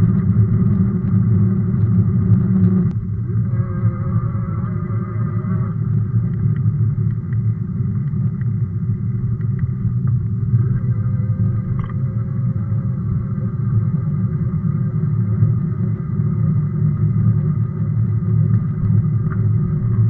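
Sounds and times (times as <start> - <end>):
bike tyres on rough pavement: 0.0 - 3.0
wind on microphone: 0.0 - 20.0
faint ticks: 4.6 - 10.9.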